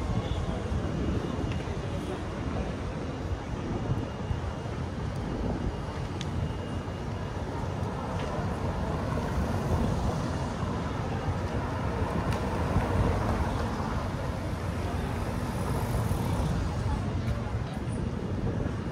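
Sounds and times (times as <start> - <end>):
wind on microphone: 16.2 - 18.9.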